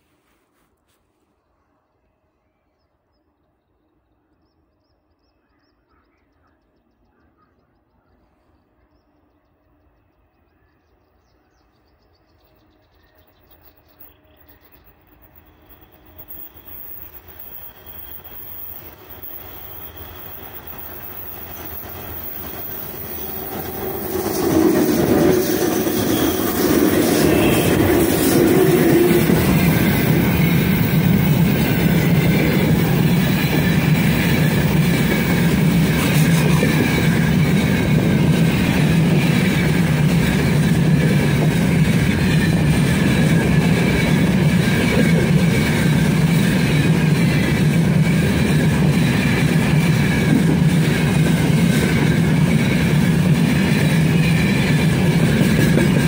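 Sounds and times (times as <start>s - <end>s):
freight train rumble: 8.6s - 56.0s
faint high wheel squeal: 13.0s - 35.4s
clickety-clack over rail joints: 13.6s - 56.0s.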